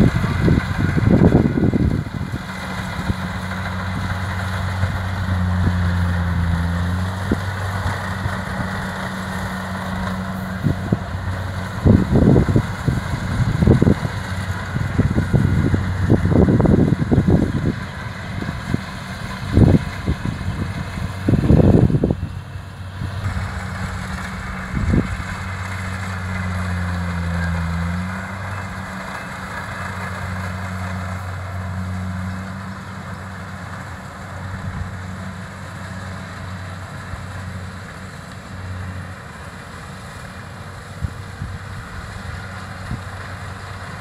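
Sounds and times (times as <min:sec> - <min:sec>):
wind rumbling on microphone: 0:00.0 - 0:02.4, 0:09.6 - 0:25.9
combine harvester diesel engine: 0:00.0 - 0:44.0.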